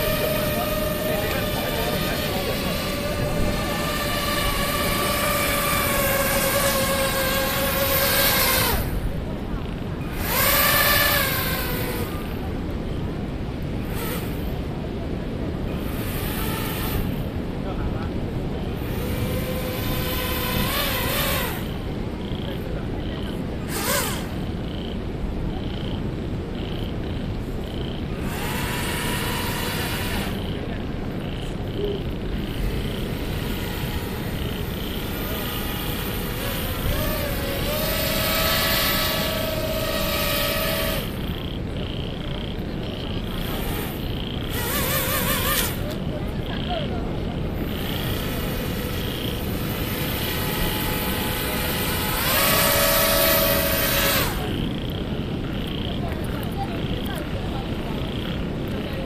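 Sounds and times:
steady low rumble: 0.0s - 8.1s
airboat fan propellers whirring: 0.0s - 59.0s.

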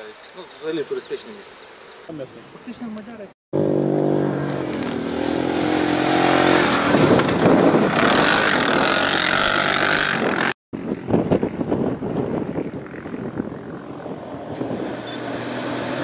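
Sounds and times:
quad bike engine revving: 3.6s - 11.5s, 12.3s - 16.0s.

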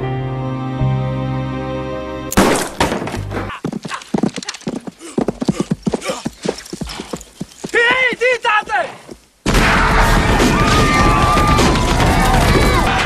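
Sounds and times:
film score music: 0.0s - 2.4s
loud crash: 9.5s - 13.0s.

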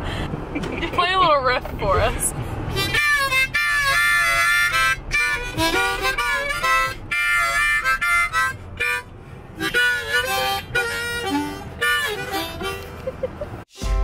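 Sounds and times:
car cabin rumble: 0.0s - 13.6s
harmonica riffs: 2.7s - 14.0s.

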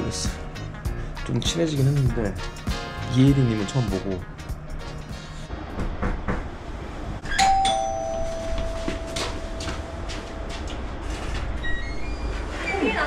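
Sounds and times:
two-tone doorbell chime: 7.3s - 10.0s.

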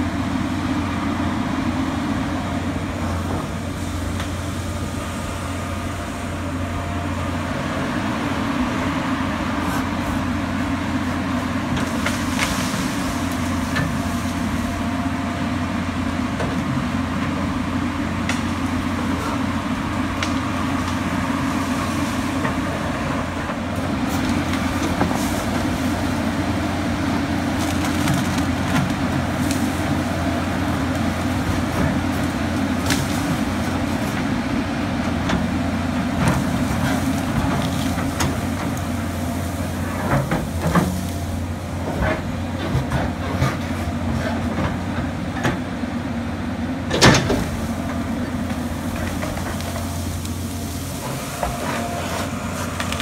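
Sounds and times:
excavator diesel engine droning: 0.0s - 53.0s
branches snapping: 27.5s - 30.2s, 30.9s - 33.7s, 52.1s - 53.0s.

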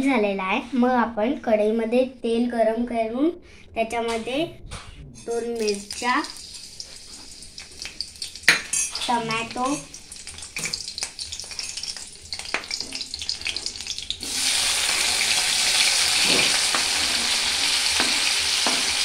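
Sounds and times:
tomatoes sizzling in hot oil: 5.5s - 19.0s
oil crackling: 5.6s - 19.0s
steel spoon tapping board: 18.0s - 19.0s.

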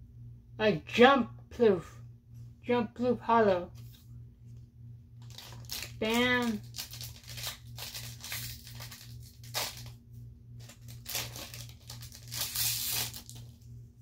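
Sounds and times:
cards rustling: 5.2s - 10.0s, 10.6s - 13.6s
foil wrapper crinkling and tearing: 5.2s - 10.0s, 10.6s - 13.6s.

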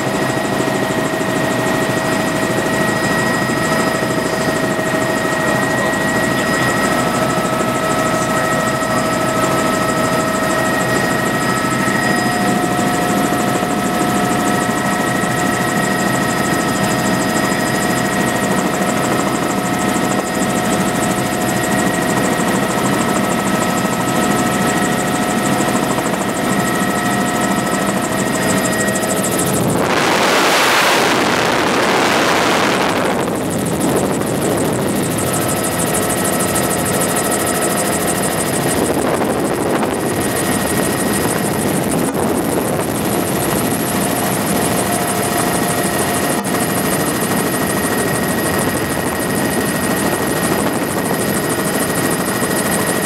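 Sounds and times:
high steady whine: 0.0s - 52.8s
helicopter engine and rotor drone: 0.0s - 53.0s
loud rush of noise: 28.4s - 34.2s.

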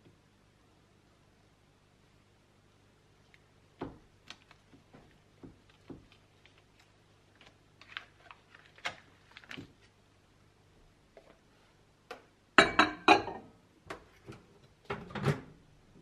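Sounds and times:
paper wrapper rustling: 4.2s - 9.9s.

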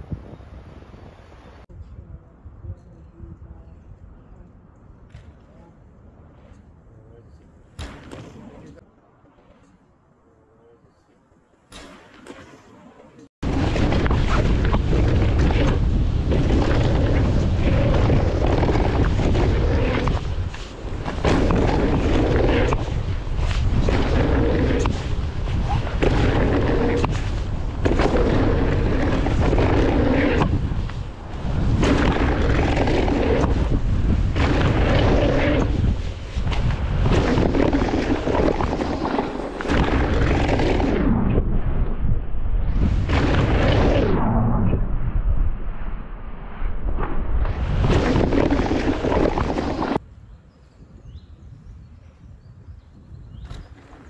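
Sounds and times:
wind buffeting microphone: 0.0s - 8.8s, 13.4s - 54.0s
bike tyres on dirt trail: 13.4s - 41.5s, 46.9s - 50.0s.

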